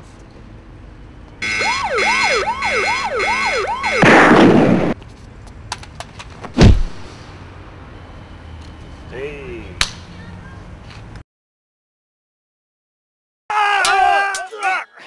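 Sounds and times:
electronic siren-like whoop: 1.4s - 4.1s
loud burst of noise: 3.7s - 5.0s
heavy thump: 6.5s - 7.1s.

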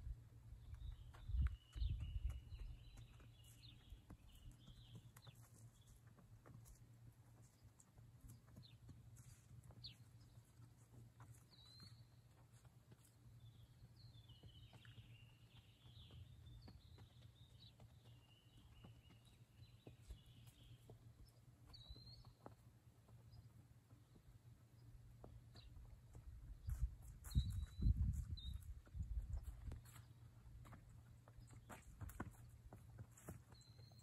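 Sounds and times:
faint bird chirps: 26.6s - 28.7s.

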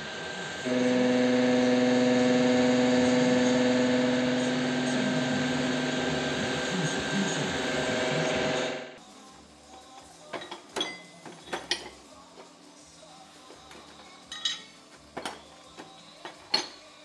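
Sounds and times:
electric motor humming: 0.0s - 9.0s.

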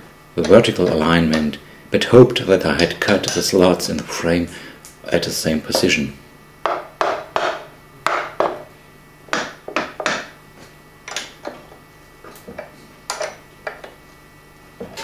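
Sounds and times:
wooden mallet knocking on metal: 6.7s - 8.6s.

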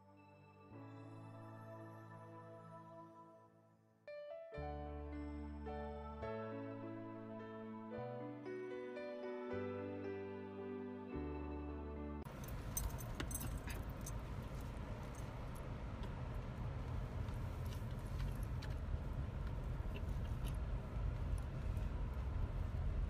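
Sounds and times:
keys jingling: 12.3s - 15.3s
car engine rumble: 12.3s - 23.0s.

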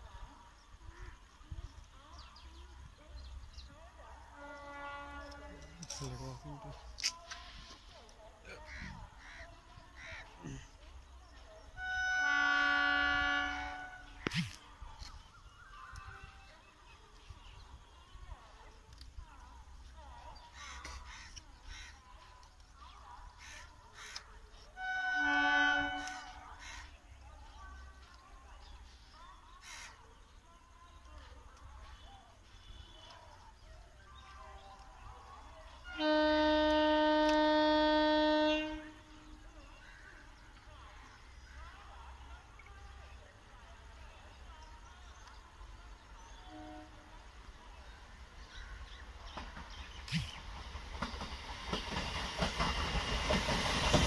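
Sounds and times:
train horn blast: 4.3s - 6.0s, 11.7s - 14.4s, 24.7s - 26.8s, 35.8s - 39.5s, 46.3s - 47.3s
crow cawing: 29.6s - 30.0s.

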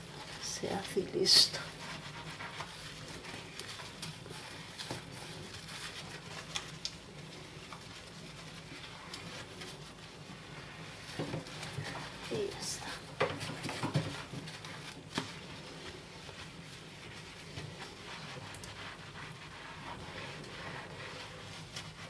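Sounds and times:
sponge scrubbing glass: 0.0s - 22.0s.

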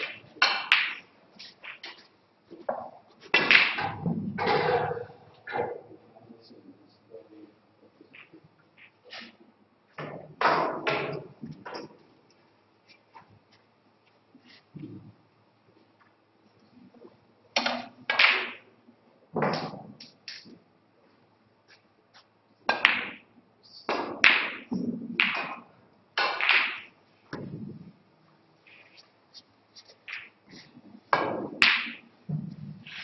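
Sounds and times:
snooker balls clacking: 0.0s - 5.9s, 10.0s - 12.2s, 17.6s - 18.7s, 19.3s - 20.6s, 22.7s - 23.3s, 23.9s - 27.9s, 30.0s - 30.4s, 31.0s - 33.0s.

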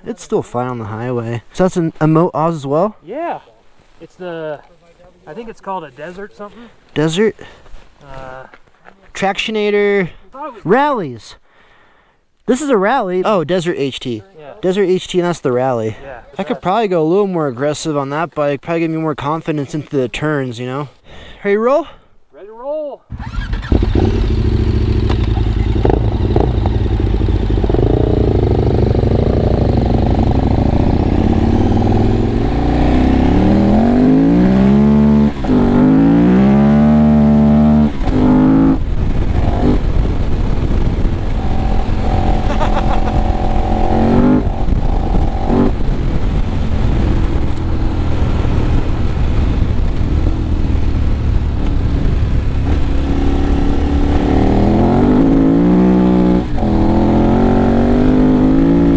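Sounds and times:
motorcycle engine revving: 23.1s - 58.9s.

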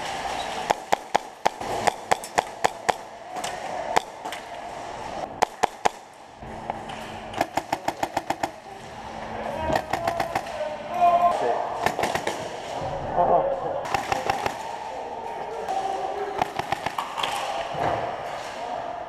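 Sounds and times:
airsoft gunshots: 0.6s - 4.3s, 5.4s - 6.1s, 7.4s - 8.6s, 9.7s - 10.6s, 11.8s - 12.6s, 13.8s - 14.9s, 16.4s - 17.6s.

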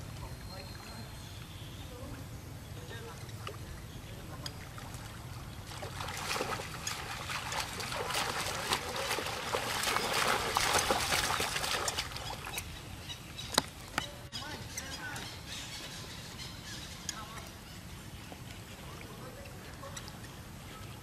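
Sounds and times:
water splashing and churning: 3.4s - 14.0s
sharp splash: 5.7s - 12.5s.

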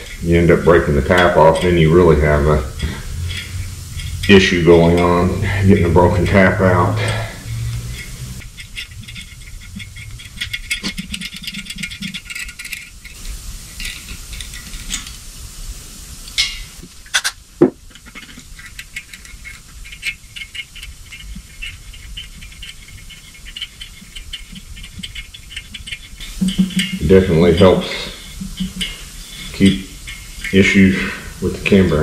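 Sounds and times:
aerosol can hissing: 0.0s - 8.6s, 12.9s - 17.0s, 25.4s - 32.0s.

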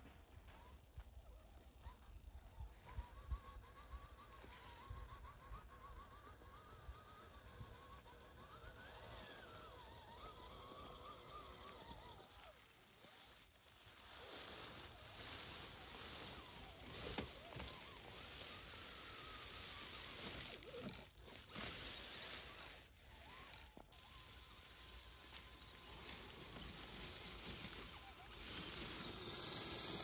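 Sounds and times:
small rc trucks driving: 0.0s - 30.0s
dry leaves rustling and crunching: 9.8s - 30.0s.

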